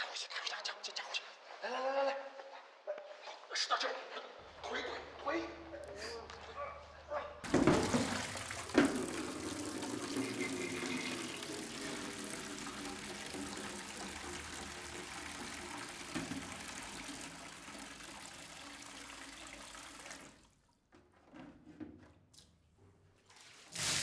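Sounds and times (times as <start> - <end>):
water running: 4.4 - 20.7, 23.3 - 24.0.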